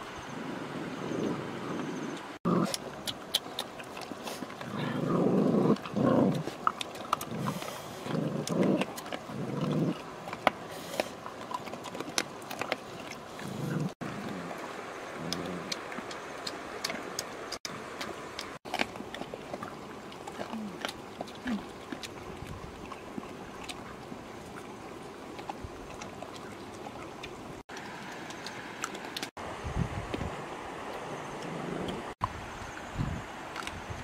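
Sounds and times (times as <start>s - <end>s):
dogs growling low: 0.3s - 3.0s, 4.0s - 16.0s, 31.1s - 32.2s
dogs eating with wet smacking: 2.4s - 29.4s.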